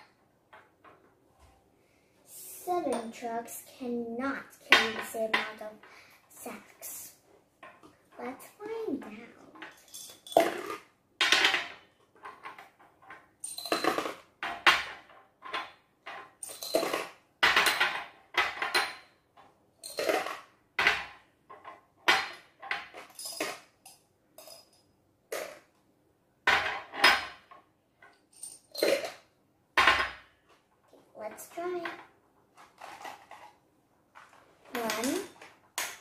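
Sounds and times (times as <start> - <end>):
glass jars clinking: 9.6 - 10.8, 13.4 - 14.1, 16.4 - 19.1, 19.8 - 20.3, 22.2 - 25.5, 28.3 - 29.2.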